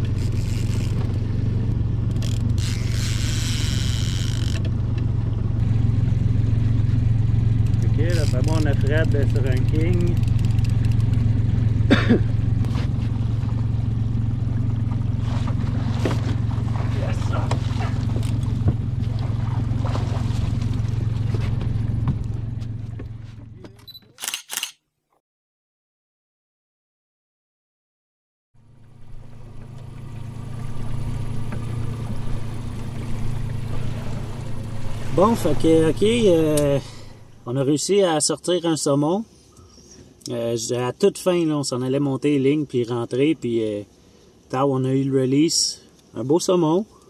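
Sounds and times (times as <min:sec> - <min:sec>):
engine idling: 0:00.0 - 0:23.7, 0:28.6 - 0:37.8
outboard motor running: 0:00.0 - 0:23.8, 0:28.6 - 0:38.0.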